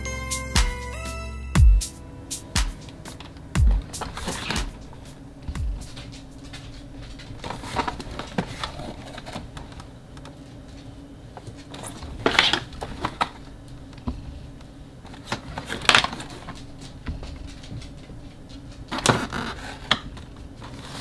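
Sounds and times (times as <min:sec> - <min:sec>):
packaging rustling: 0:05.8 - 0:09.9.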